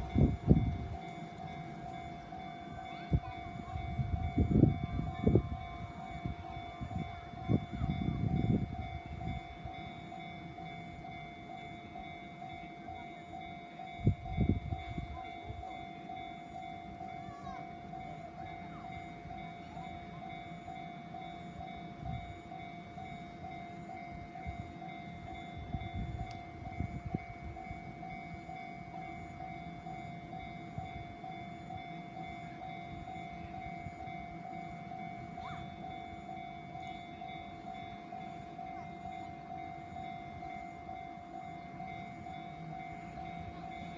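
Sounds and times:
level crossing warning bell: 0.0 - 43.9.

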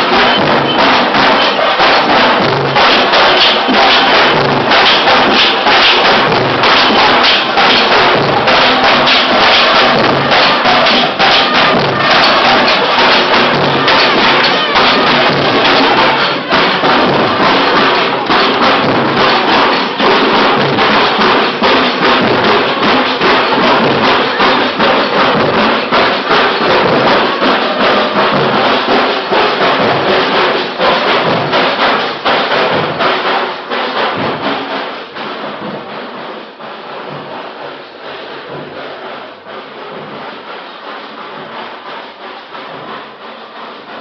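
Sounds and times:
fast driving drumming: 0.0 - 44.0
trumpets: 9.9 - 17.4.

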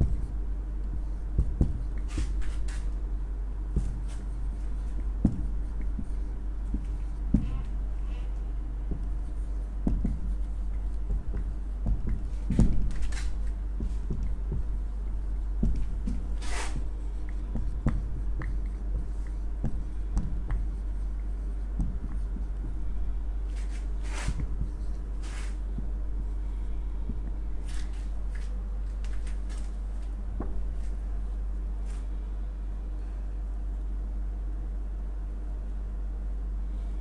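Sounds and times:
marker writing on whiteboard: 0.0 - 3.0, 3.7 - 28.5
low hum: 0.0 - 37.0.

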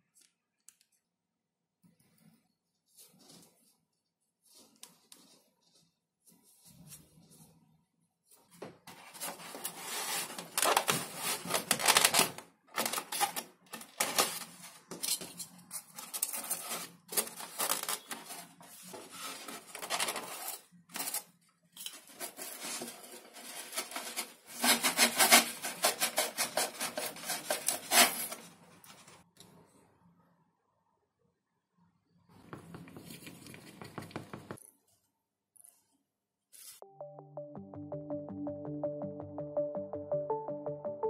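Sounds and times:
foam rubbing and scraping: 8.9 - 11.7, 22.0 - 28.5.

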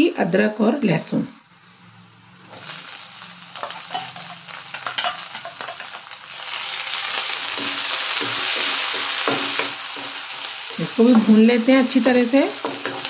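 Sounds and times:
food sizzling in hot oil: 2.0 - 13.0.

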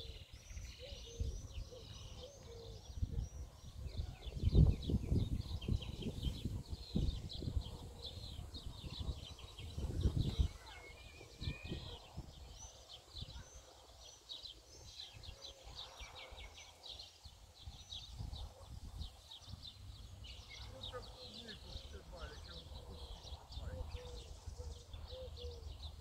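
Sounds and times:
songbirds chirping and trilling: 0.0 - 26.0
wind buffeting microphone: 0.0 - 26.0.

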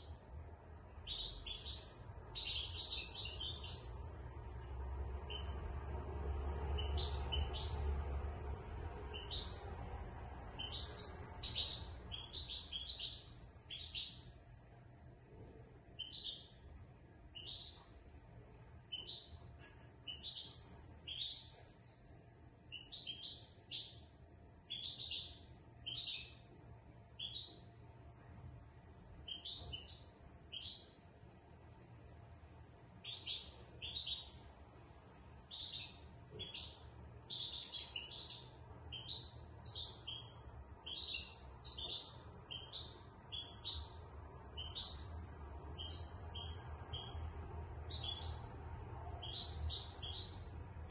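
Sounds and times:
goldfinch chirping and twittering: 1.0 - 4.0, 5.2 - 5.7, 6.7 - 7.8, 9.1 - 9.8, 10.5 - 14.3, 16.0 - 16.6, 17.4 - 17.9, 18.9 - 19.4, 20.0 - 21.7, 22.7 - 24.0, 24.7 - 26.4, 27.2 - 27.7, 29.2 - 30.9, 33.0 - 34.4, 35.5 - 48.6, 49.2 - 50.9.

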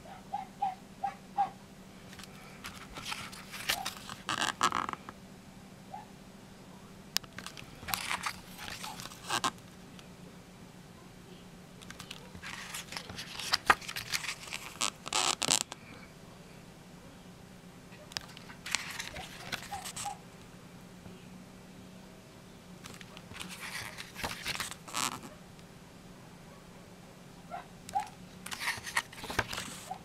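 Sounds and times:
pages being turned: 2.1 - 5.0, 7.3 - 9.6, 11.8 - 15.7, 18.0 - 20.2, 22.8 - 25.3, 28.4 - 30.0.

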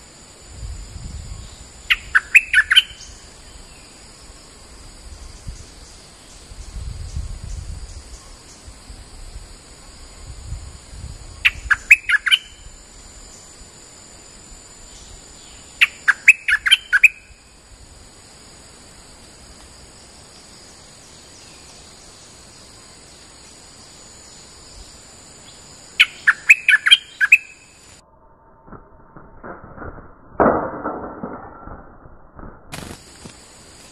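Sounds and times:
bulbul song: 1.9 - 3.1, 11.5 - 12.6, 15.6 - 17.4, 26.0 - 27.7.

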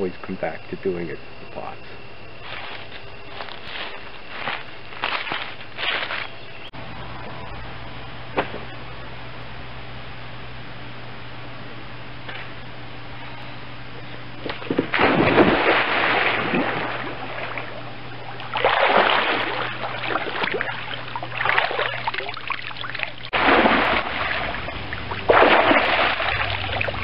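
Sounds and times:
water splashing and sloshing: 14.4 - 27.0
big splash into pool: 14.5 - 17.8, 18.5 - 22.5, 23.3 - 27.0
water pouring off body: 18.4 - 27.0.

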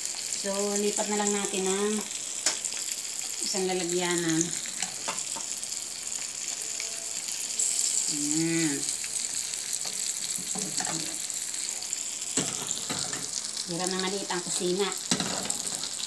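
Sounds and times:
oil sizzling in a pan: 0.0 - 16.0
person humming: 8.1 - 8.9.

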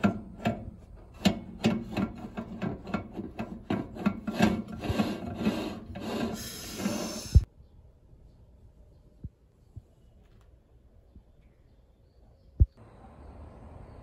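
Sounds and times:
glass plate scraping and knocking: 1.2 - 7.2.

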